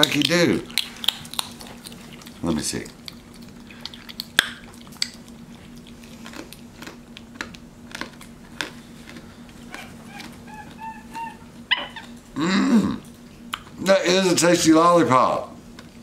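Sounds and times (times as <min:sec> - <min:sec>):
wet mouth clicks and smacks: 0:00.0 - 0:05.9
monkey chirps: 0:09.7 - 0:12.2.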